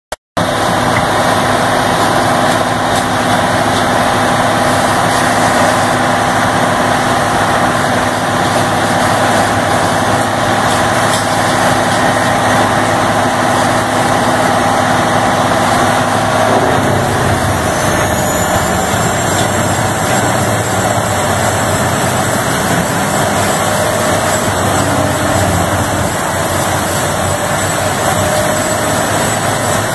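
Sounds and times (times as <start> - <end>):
grinder engine running loudly: 0.4 - 29.9
high turbo whistle: 13.7 - 29.0.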